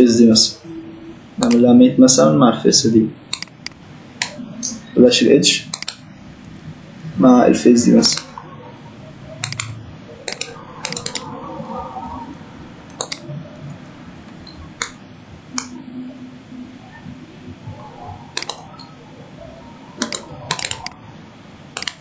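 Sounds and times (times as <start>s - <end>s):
computer mouse clicks: 1.4s - 1.6s, 3.3s - 4.4s, 5.7s - 6.0s, 8.1s - 8.4s, 9.4s - 11.3s, 12.9s - 13.3s, 14.4s - 15.8s, 18.4s - 18.9s, 20.0s - 21.0s, 21.8s - 22.0s.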